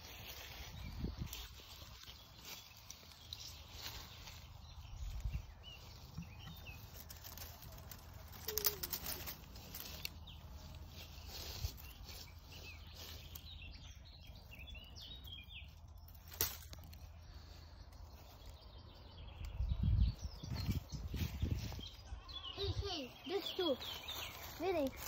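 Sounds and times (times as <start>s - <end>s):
rustling of twigs and leaves: 0.0s - 25.0s
small birds chirping: 0.0s - 25.0s
sharp twig snaps: 16.1s - 17.0s.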